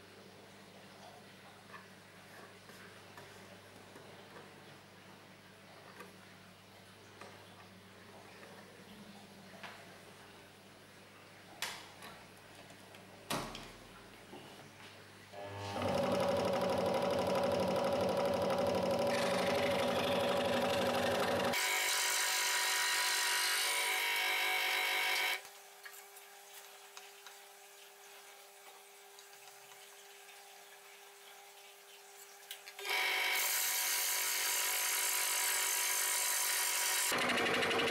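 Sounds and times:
scroll saw cutting wood: 15.4s - 25.4s, 32.8s - 37.9s.

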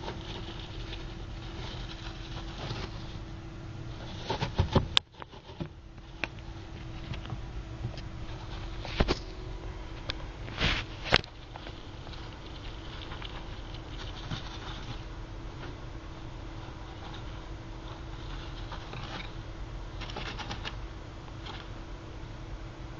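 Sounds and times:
gerbil scratching and tapping: 0.0s - 3.2s, 4.0s - 9.3s, 10.8s - 15.8s, 16.6s - 20.8s, 21.4s - 21.7s
faint steady hum: 0.0s - 22.9s.

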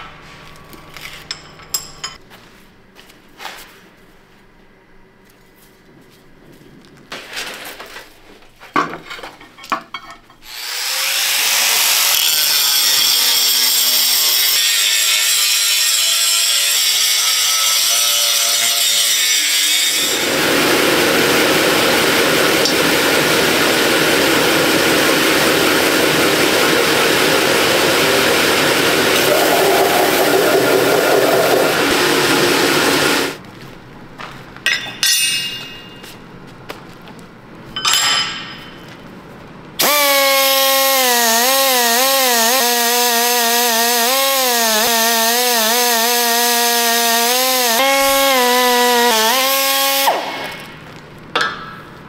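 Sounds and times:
angle grinder grinding steel: 10.4s - 33.4s, 39.8s - 50.8s
belt grinder grinding: 10.4s - 33.4s, 39.8s - 50.8s.

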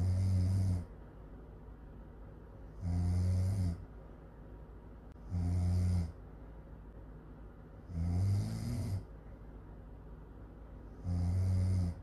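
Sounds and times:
woman snoring: 0.0s - 0.9s, 2.8s - 3.8s, 5.2s - 6.2s, 7.9s - 9.1s, 11.0s - 12.0s.

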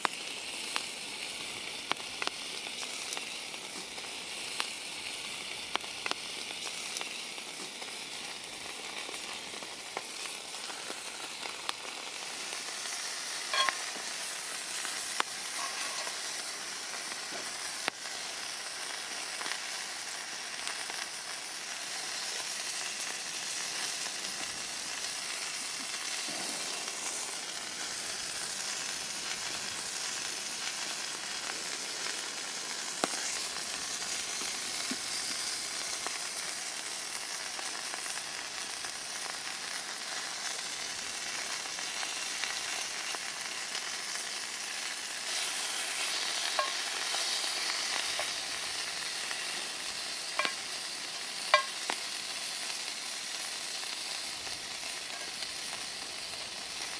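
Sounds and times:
sausages sizzling in pan: 0.0s - 56.9s.

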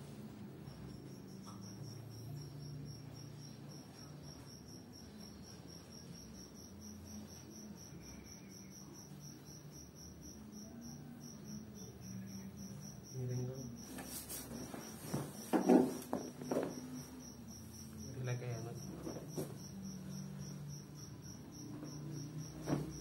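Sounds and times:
insect chirping: 0.3s - 23.0s
knocks and rustles: 13.9s - 17.1s, 18.8s - 19.7s, 22.5s - 23.0s.

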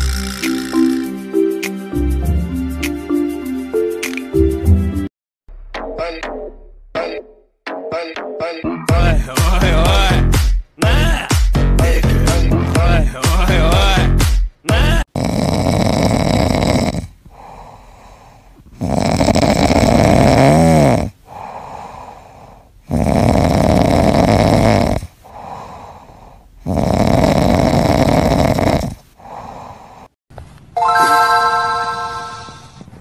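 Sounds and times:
cat snoring: 15.1s - 30.1s
cat breathing softly: 17.3s - 18.7s, 21.2s - 22.8s, 25.2s - 26.6s.

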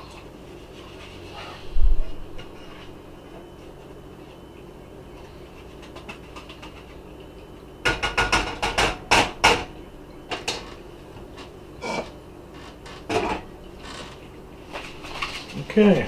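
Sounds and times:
metal utensil scraping saucepan: 11.8s - 12.2s.

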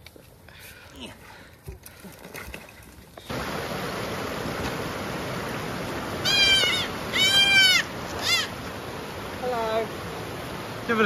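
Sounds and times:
creek rushing: 3.2s - 11.0s
goat kid bleating: 6.2s - 8.5s.

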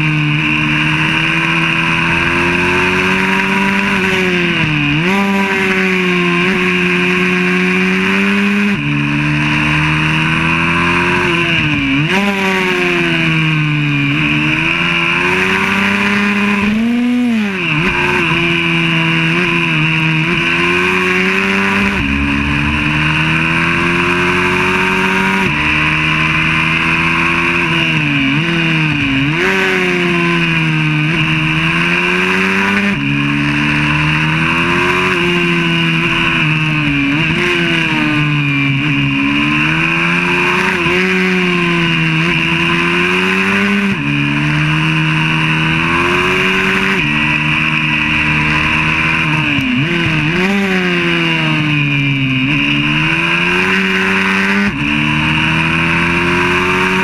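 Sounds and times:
single-cylinder motorbike engine: 0.0s - 57.0s.

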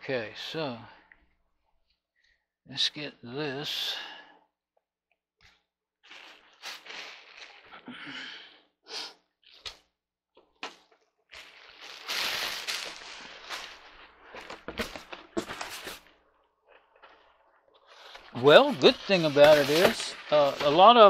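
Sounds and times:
cardboard box rustling and scraping: 11.9s - 16.0s, 18.1s - 20.9s.

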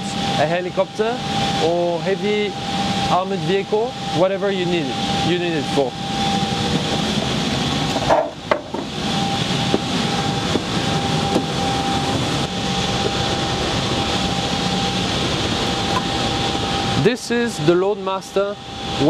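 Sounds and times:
air handling hum: 0.0s - 19.0s
thin steady whine: 0.0s - 19.0s
knocks and rustles: 7.9s - 9.0s.

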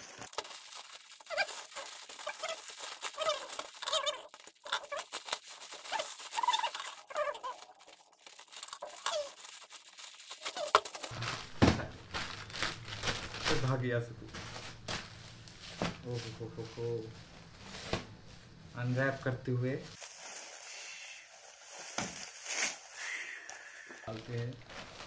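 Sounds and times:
plastic bag tearing and crinkling: 0.0s - 18.2s, 24.1s - 25.0s
squeaks of stretching plastic: 1.2s - 9.7s, 10.4s - 11.2s.

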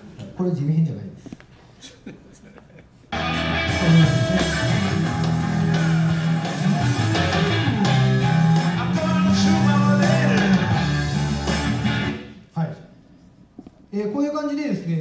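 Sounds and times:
rock music through a speaker: 3.1s - 12.4s.

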